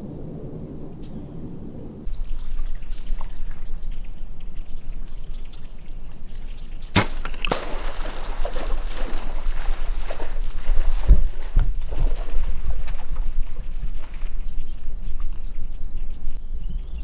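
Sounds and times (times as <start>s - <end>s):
animal running through brush and water: 2.1s - 16.4s
bowstring crack: 6.9s - 7.7s.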